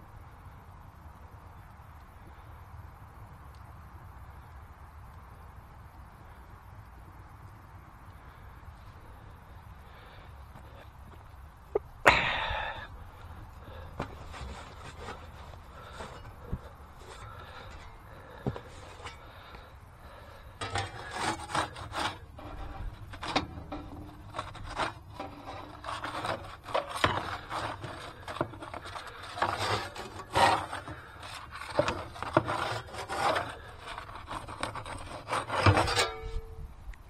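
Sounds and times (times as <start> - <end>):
rubbing and scraping: 13.6 - 36.5.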